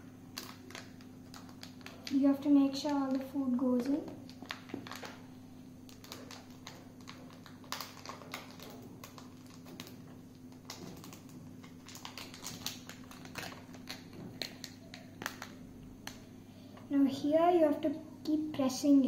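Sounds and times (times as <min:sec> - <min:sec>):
paper cup clicking and crinkling: 0:00.4 - 0:05.2, 0:05.9 - 0:16.3.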